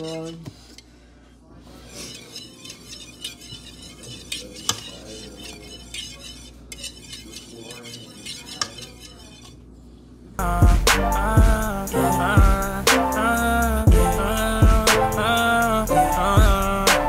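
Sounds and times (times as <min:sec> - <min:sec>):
whisk beating eggs in bowl: 0:00.0 - 0:00.8, 0:01.6 - 0:09.7
whisk clinking against bowl: 0:01.7 - 0:09.6
r and b song with beat: 0:10.4 - 0:17.0.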